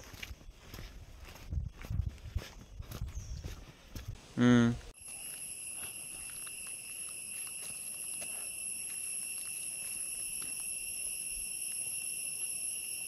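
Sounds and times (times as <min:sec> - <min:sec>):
insects shrill drone: 0:05.1 - 0:13.0.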